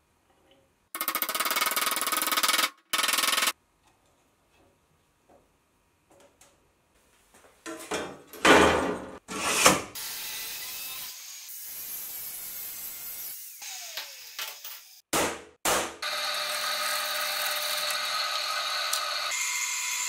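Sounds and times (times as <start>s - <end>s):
angle grinder grinding steel: 16.0s - 20.0s.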